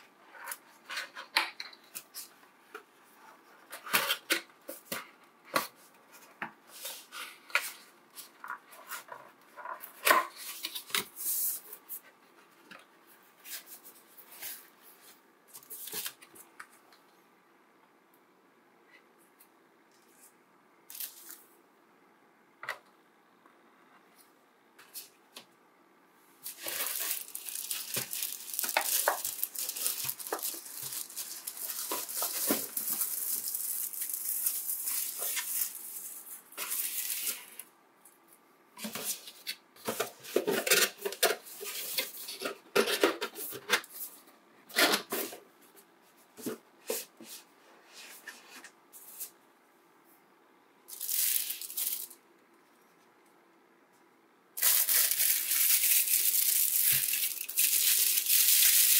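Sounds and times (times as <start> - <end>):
plastic wrap rustling: 26.4 - 37.6, 50.9 - 52.2, 54.6 - 58.9.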